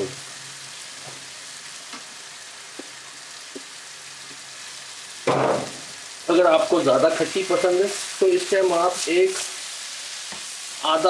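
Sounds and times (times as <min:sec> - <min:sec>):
food sizzling in a pan: 0:00.0 - 0:11.0.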